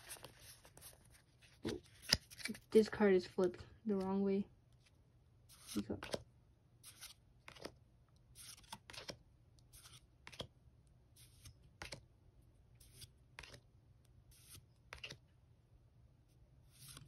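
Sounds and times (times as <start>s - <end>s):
cards swishing: 16.7s - 17.0s.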